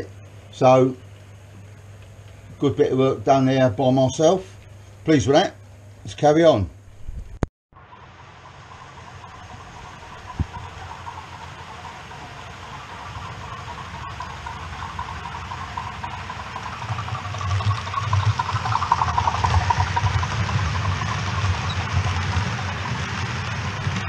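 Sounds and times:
model train rumbling past: 0:07.8 - 0:24.0.

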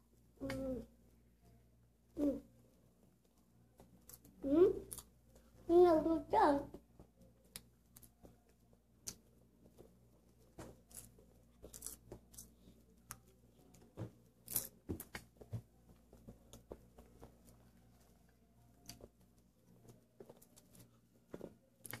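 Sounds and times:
popcorn crunching and chewing: 0:03.8 - 0:05.2, 0:07.4 - 0:08.3, 0:10.8 - 0:15.3, 0:21.7 - 0:22.0.

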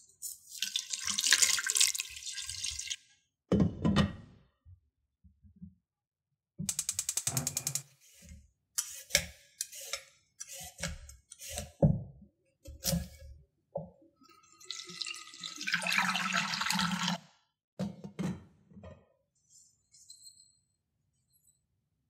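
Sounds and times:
water pouring into a saucepan: 0:00.5 - 0:03.0, 0:14.3 - 0:17.2
peeler scraping a carrot: 0:08.0 - 0:11.8.

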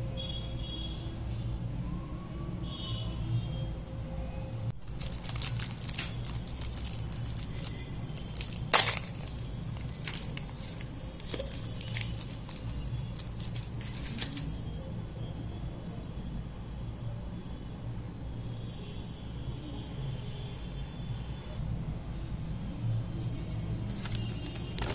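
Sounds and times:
wrapper crinkling: 0:04.8 - 0:14.6, 0:23.9 - 0:24.9
chocolate bar snapping: 0:05.0 - 0:10.6.

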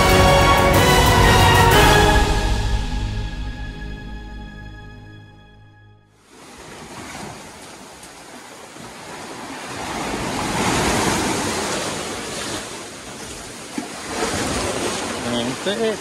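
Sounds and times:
ocean surf washing in: 0:06.2 - 0:13.4, 0:14.0 - 0:16.0.

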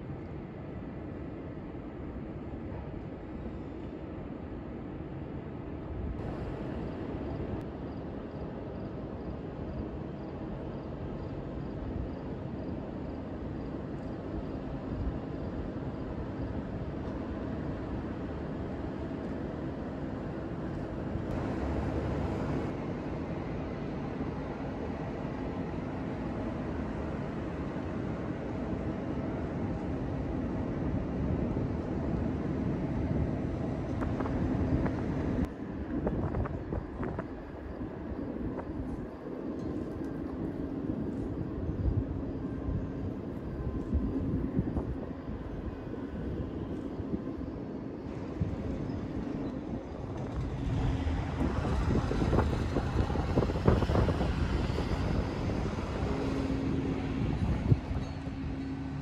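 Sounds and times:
ship engine rumble and hum: 0:14.7 - 0:59.0
wind on microphone: 0:30.6 - 0:59.0.

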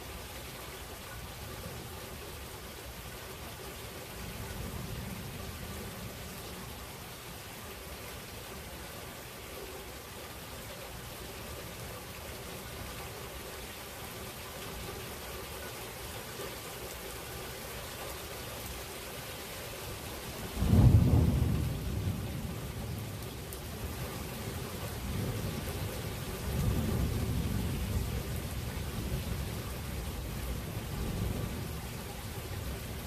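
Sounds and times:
steady rain: 0:00.0 - 0:33.0
thunder clap and rumble: 0:20.5 - 0:24.1.

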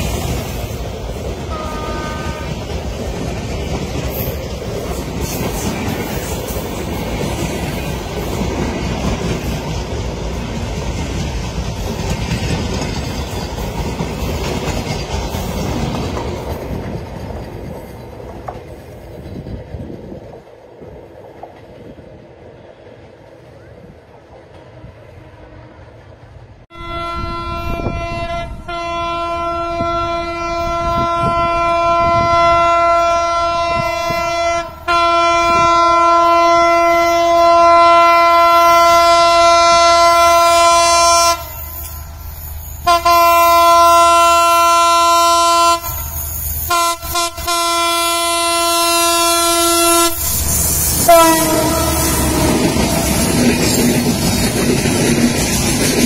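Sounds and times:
rumble and clatter of train coaches: 0:00.0 - 0:56.0
locomotive air horn blasts: 0:01.5 - 0:02.6, 0:26.7 - 0:42.1, 0:42.8 - 0:52.8.

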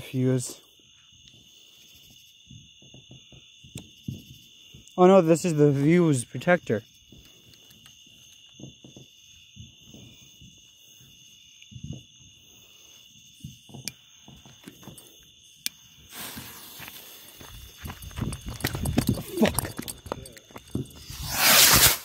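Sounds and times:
crickets chirping: 0:00.0 - 0:22.0
firework fuse hissing: 0:15.8 - 0:17.6, 0:20.9 - 0:22.0
quick footsteps on gravel: 0:16.2 - 0:21.2.

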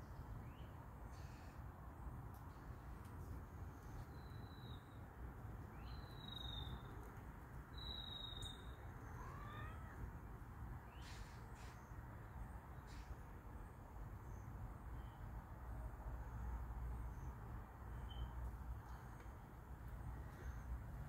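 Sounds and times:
cat yowling: 0:09.0 - 0:10.0.

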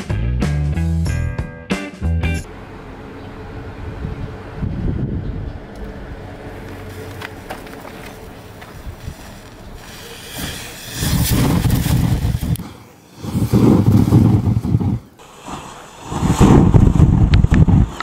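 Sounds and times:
whoosh of flame jetting: 0:09.0 - 0:18.0.

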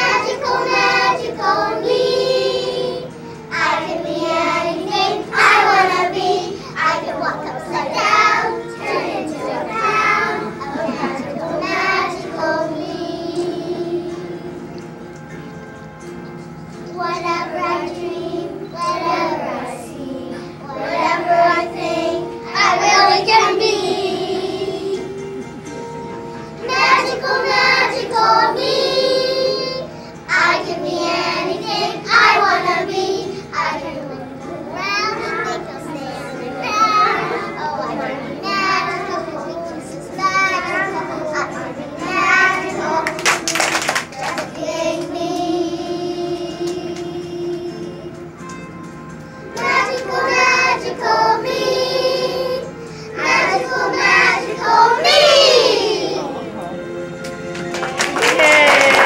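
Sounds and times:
children singing together: 0:00.0 - 0:15.0, 0:16.8 - 0:48.4, 0:49.4 - 0:56.7.

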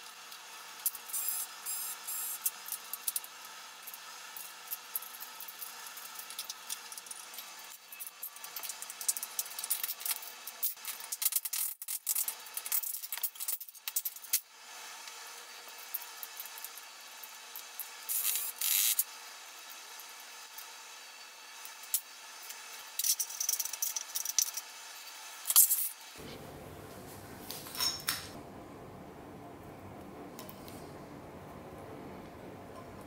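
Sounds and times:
metal parts clicking and clinking: 0:04.4 - 0:14.4, 0:27.6 - 0:28.4.

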